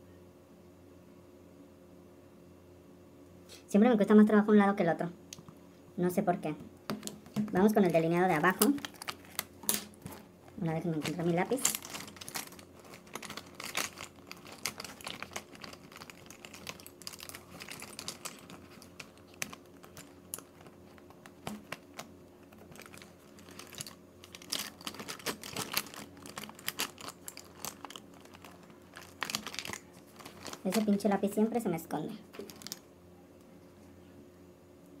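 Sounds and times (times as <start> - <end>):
small objects clicking and clattering: 6.9 - 31.2, 32.3 - 32.9.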